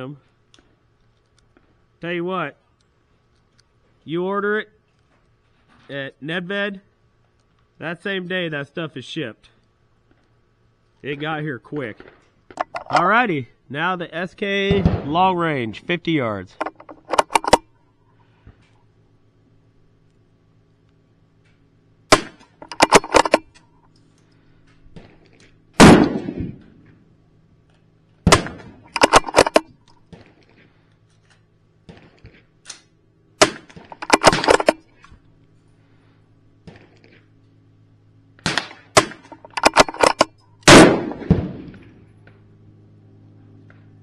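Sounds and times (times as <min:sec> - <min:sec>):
rifle shots: 0:14.7 - 0:15.2, 0:22.1 - 0:23.5, 0:25.8 - 0:26.8, 0:28.2 - 0:30.3, 0:33.4 - 0:34.8, 0:38.4 - 0:42.0.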